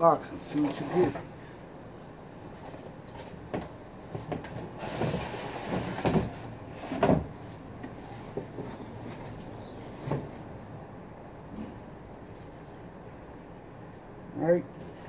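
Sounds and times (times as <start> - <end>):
cardboard scraping and rustling: 2.6 - 10.5.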